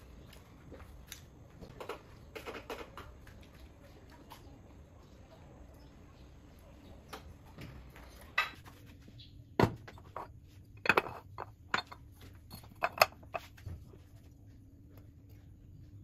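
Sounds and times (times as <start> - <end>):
pots and dishes clinking: 10.1 - 13.4.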